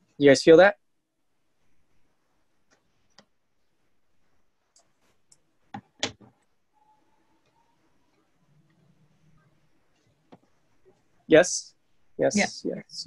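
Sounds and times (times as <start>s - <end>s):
faint clicks and taps: 1.6s - 6.6s, 7.3s - 11.1s
faint thin tone: 6.7s - 9.7s.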